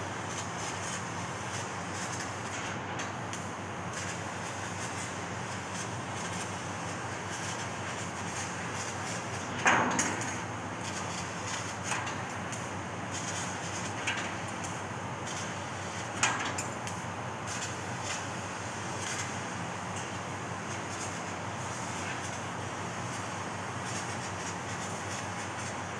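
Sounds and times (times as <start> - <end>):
laser cutter hissing: 17.4 - 25.9.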